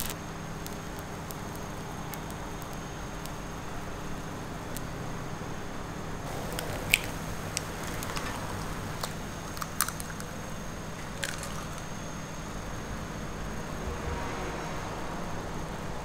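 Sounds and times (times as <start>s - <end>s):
steady low hum: 0.0s - 16.0s
eggshells cracking: 6.3s - 12.2s.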